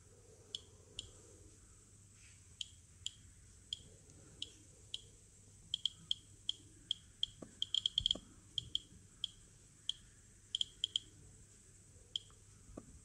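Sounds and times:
geiger counter clicking: 5.7s - 10.0s, 10.6s - 11.1s, 12.2s - 12.4s.

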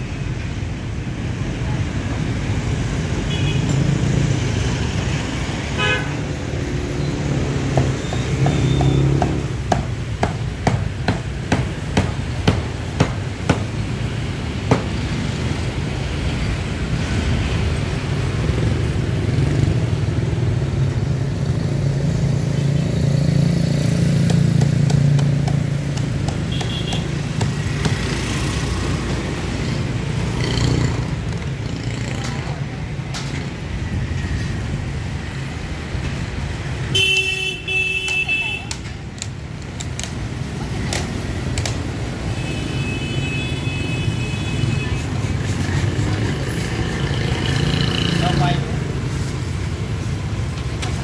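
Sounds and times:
street traffic rumble: 0.0s - 51.0s
cleaver chopping on wooden block: 7.6s - 13.8s, 14.6s - 15.0s, 24.2s - 28.2s
vehicle horn tooting: 36.9s - 38.7s.

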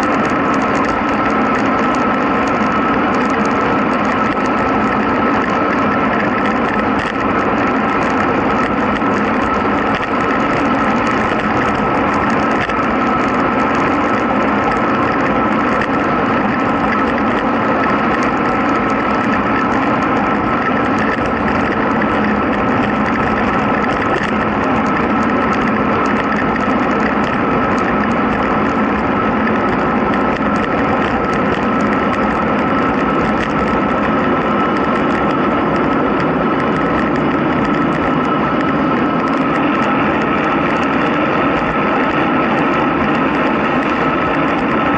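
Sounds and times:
wind and road noise: 0.0s - 44.9s.

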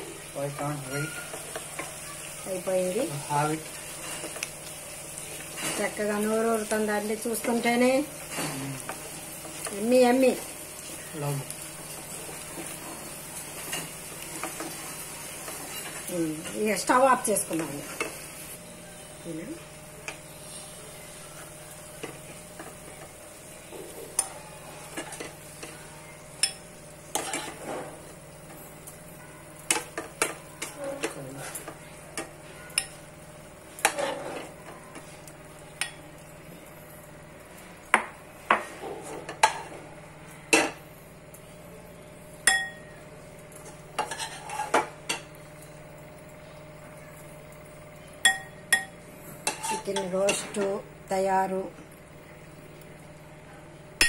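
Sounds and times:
metal spoon scraping frying pan: 26.4s - 27.9s, 44.0s - 45.2s, 48.8s - 50.7s.

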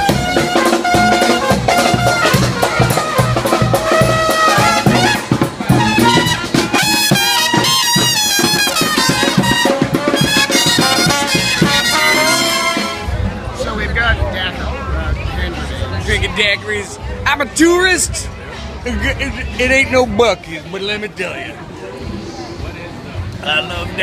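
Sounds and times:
steady drum beat: 0.0s - 13.2s
trombone sliding through notes: 0.0s - 13.2s
brass band playing: 0.0s - 13.6s.

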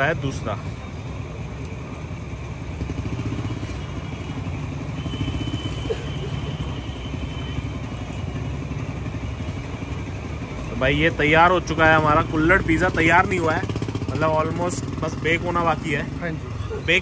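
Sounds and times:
engine idling: 0.5s - 17.0s.

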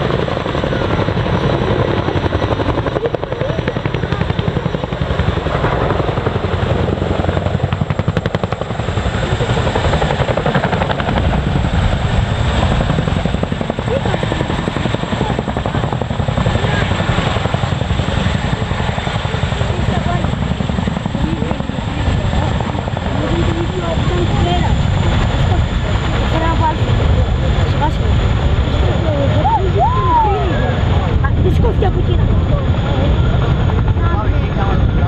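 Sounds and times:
helicopter rotor blade chop: 0.0s - 35.0s.

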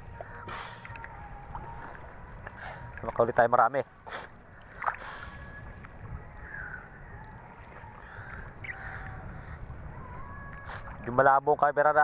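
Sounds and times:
choppy water lapping: 0.0s - 12.0s
faint distant calls: 4.0s - 11.0s
wind on microphone: 4.8s - 11.6s.

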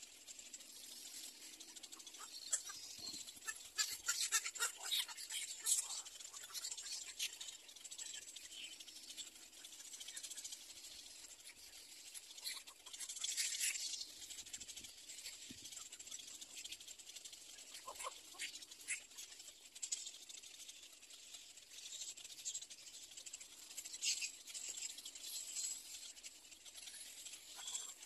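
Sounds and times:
bird chicks chattering clicks: 1.6s - 10.5s.

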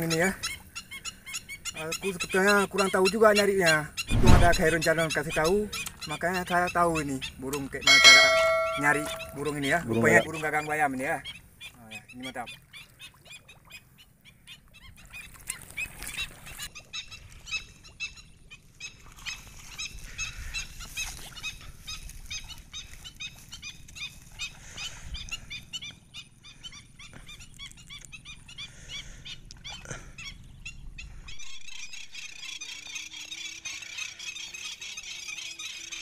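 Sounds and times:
birds calling sharp high notes: 7.9s - 10.2s.

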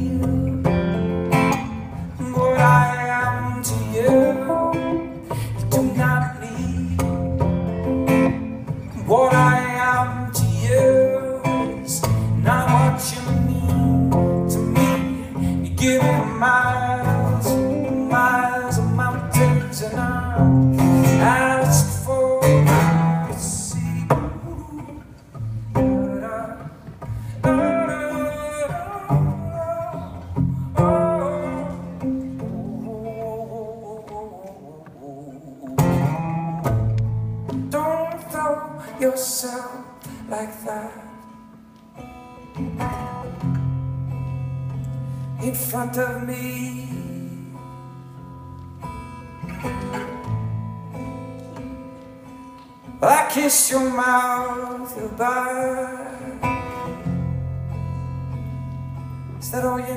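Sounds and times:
acoustic guitar strumming: 0.0s - 59.9s.

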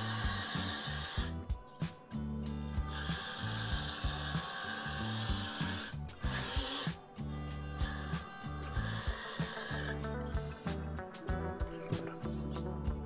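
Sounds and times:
toy car motor whirring: 0.0s - 10.5s.

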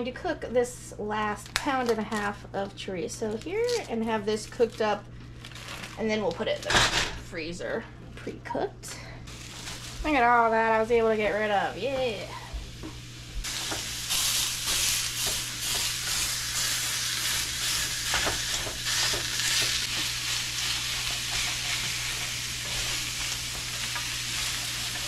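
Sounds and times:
meat sizzling in a pan: 9.3s - 10.9s, 11.7s - 25.0s.

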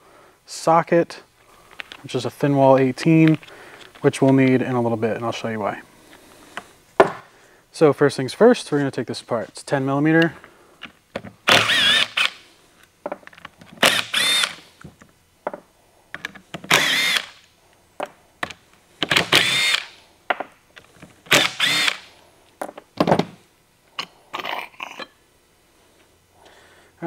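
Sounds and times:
power tool motor whine: 11.5s - 12.4s, 13.8s - 14.6s, 16.7s - 17.4s, 19.1s - 20.0s, 21.3s - 22.2s.

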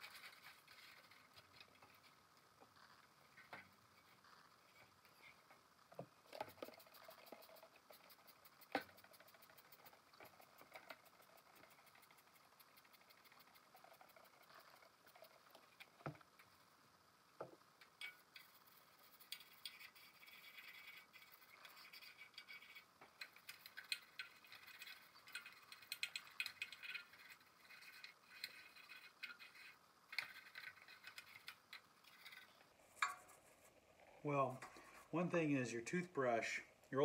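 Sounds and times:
toothbrush scrubbing metal: 0.0s - 2.2s, 6.3s - 16.6s, 17.9s - 33.4s.

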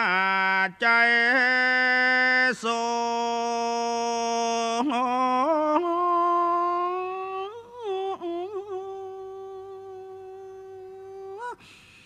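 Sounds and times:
man chanting: 0.0s - 11.6s.

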